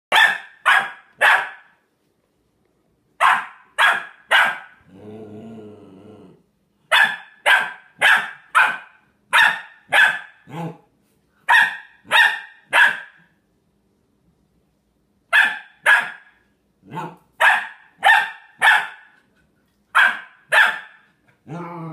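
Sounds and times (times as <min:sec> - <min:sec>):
puppy barking sharply: 0:00.1 - 0:01.8, 0:03.2 - 0:04.8, 0:06.9 - 0:10.6, 0:11.5 - 0:13.3, 0:15.3 - 0:19.2, 0:20.0 - 0:21.1
puppy growling low: 0:04.8 - 0:06.5, 0:10.5 - 0:10.9, 0:16.8 - 0:17.2, 0:21.3 - 0:21.9.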